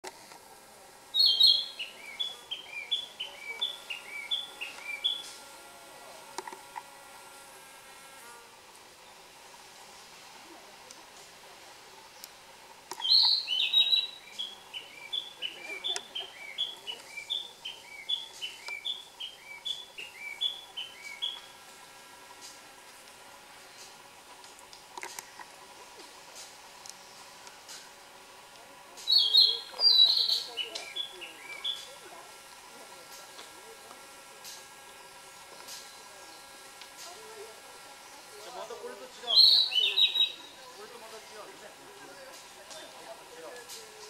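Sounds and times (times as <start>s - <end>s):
bird singing whistled phrases: 1.2s - 5.2s, 29.1s - 31.9s, 39.3s - 40.4s.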